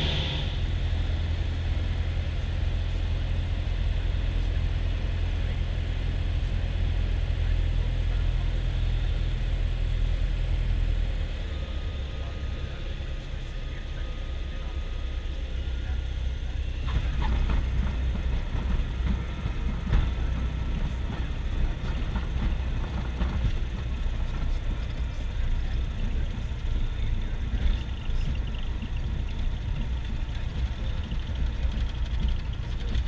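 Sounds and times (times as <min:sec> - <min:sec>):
propeller plane engine drone: 0:00.0 - 0:33.0
faint rattles: 0:16.8 - 0:33.0.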